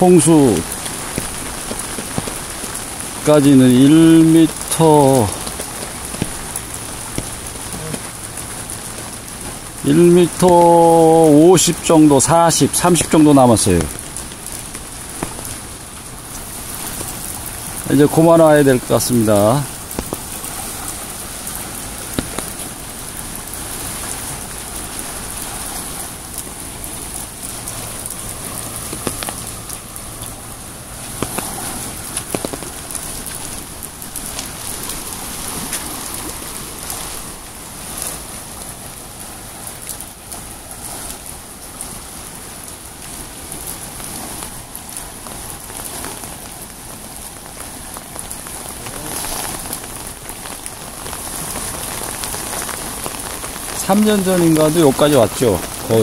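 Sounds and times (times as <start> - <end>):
heavy rain hissing: 0.0 - 56.0
sharp taps: 5.4 - 8.0, 22.1 - 22.6, 28.9 - 29.4.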